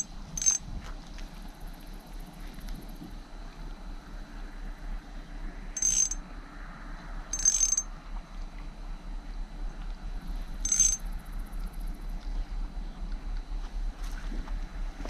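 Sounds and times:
fishing reel whirring: 0.0 - 0.6, 5.8 - 6.2, 7.3 - 7.9, 10.6 - 11.0
wind: 0.0 - 15.0.

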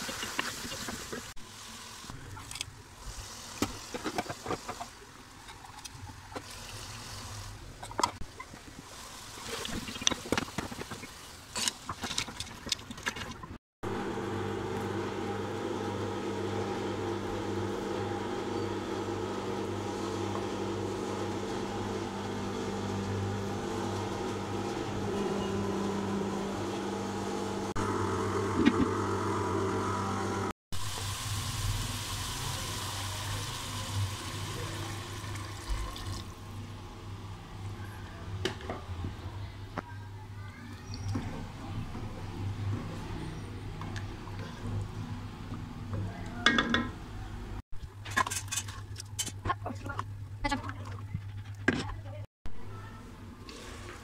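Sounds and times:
steady mechanical hum: 13.9 - 30.5.

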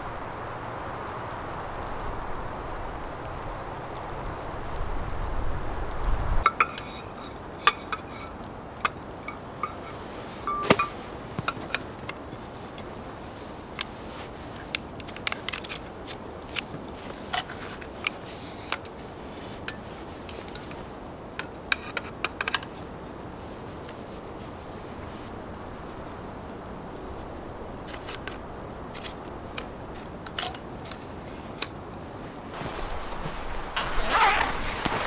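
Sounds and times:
tent pole sections clicking: 6.4 - 32.0, 32.6 - 35.0.

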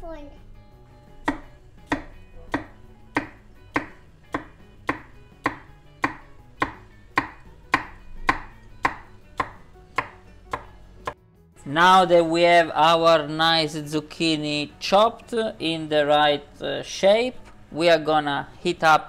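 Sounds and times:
knife chopping on wooden board: 1.2 - 11.2.

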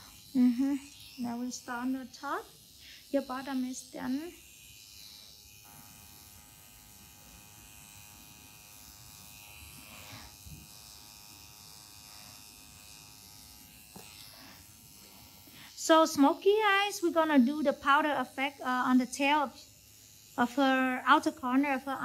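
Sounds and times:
tattoo machine motor buzzing: 0.0 - 22.0.

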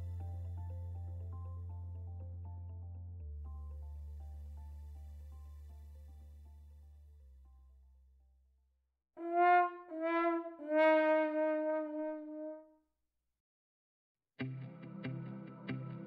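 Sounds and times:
background music: 0.0 - 7.4, 14.4 - 16.0
descending brass fail sound: 9.2 - 12.6.

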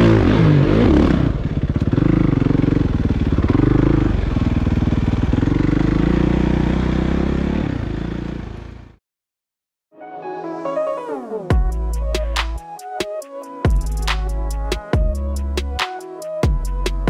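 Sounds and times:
motorcycle engine revving: 0.0 - 9.0.

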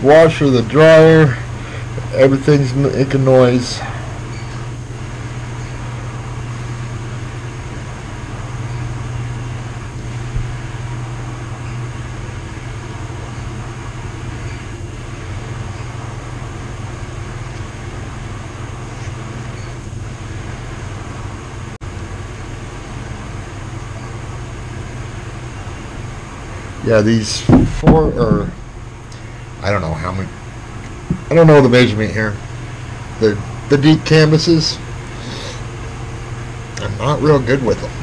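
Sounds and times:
household machines humming: 0.0 - 38.0.

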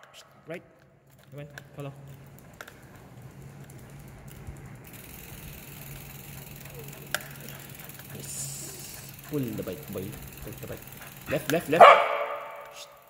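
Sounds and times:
bicycle tyres on concrete: 0.0 - 13.0
steady low hum: 0.0 - 13.0.

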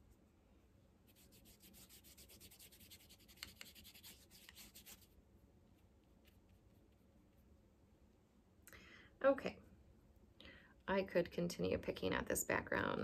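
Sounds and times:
brush scratching on paper: 1.1 - 5.2.

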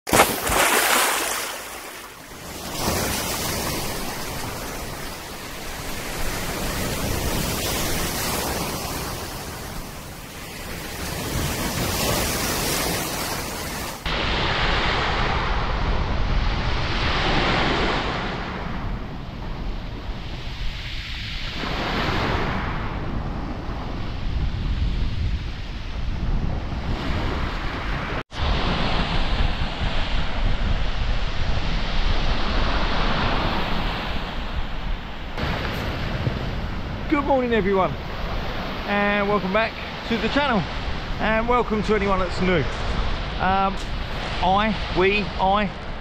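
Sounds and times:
waves breaking on shingle: 0.1 - 9.8
surf washing in: 0.1 - 46.0
wind rumbling on microphone: 0.4 - 46.0.

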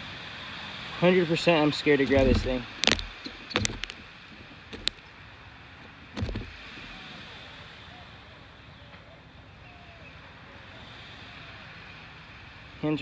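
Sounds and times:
wind noise on microphone: 2.0 - 5.0, 6.0 - 7.5
short thump: 2.1 - 4.1, 4.7 - 5.0, 6.2 - 6.9.

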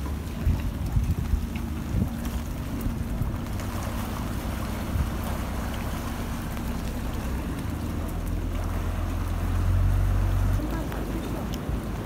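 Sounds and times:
low motor rumble: 0.0 - 12.0
wind on microphone: 0.3 - 6.1.

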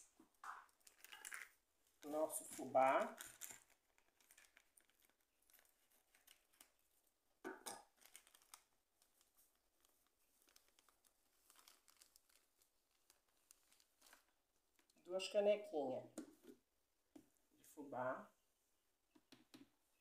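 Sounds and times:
plastic bag crinkling and rustling: 0.6 - 7.1, 7.7 - 15.0.

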